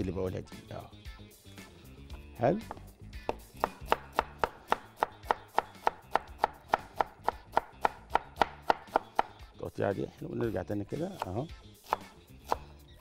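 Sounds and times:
knife chopping on wooden board: 2.1s - 9.4s, 10.4s - 13.0s.

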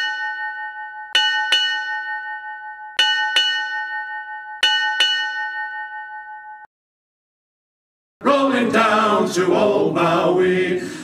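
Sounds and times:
ship's bell ringing: 0.0s - 6.7s.

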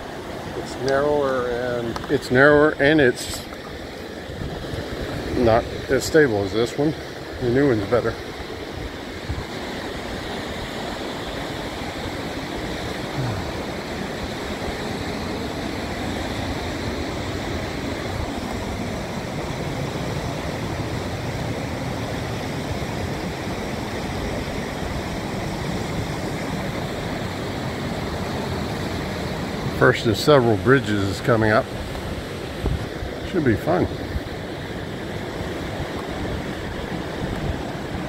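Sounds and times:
wind buffeting microphone: 3.5s - 6.6s, 30.7s - 38.0s.

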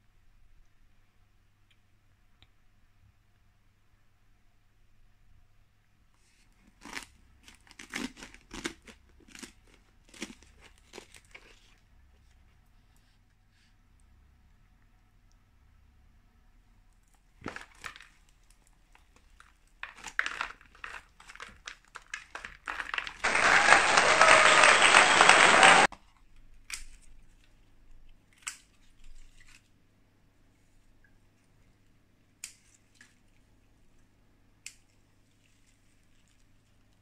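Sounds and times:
plastic sheet crinkling: 17.4s - 25.2s.

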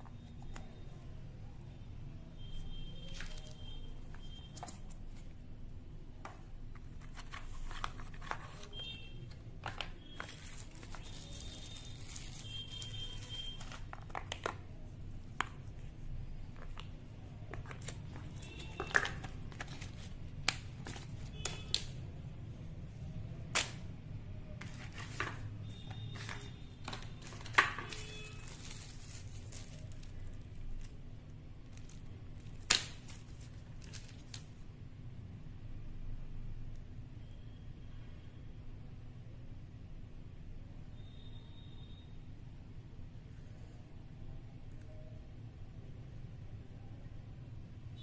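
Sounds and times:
packaging clicks and crinkling: 3.0s - 5.4s, 6.2s - 22.1s, 24.5s - 34.6s.

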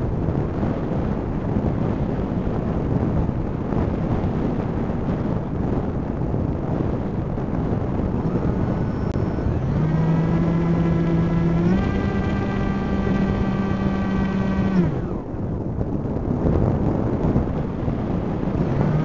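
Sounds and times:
wind noise: 0.0s - 19.0s
drone motors whining: 8.0s - 15.4s, 17.4s - 19.0s.

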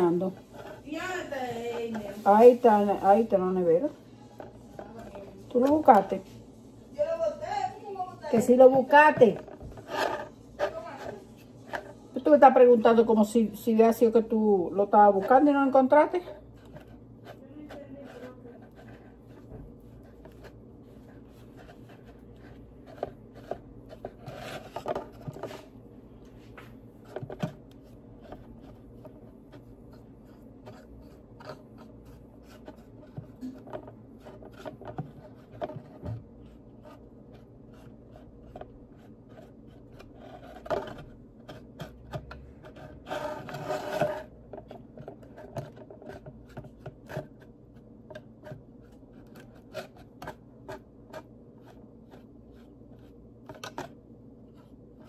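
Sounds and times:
scratchy brush rubbing: 0.0s - 5.0s, 8.3s - 12.1s, 14.8s - 25.7s, 26.9s - 44.4s, 48.4s - 53.8s.

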